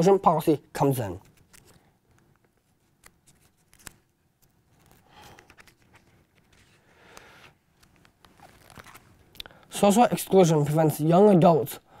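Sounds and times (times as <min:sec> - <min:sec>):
paper pages turning: 0:01.2 - 0:01.8, 0:02.4 - 0:09.3.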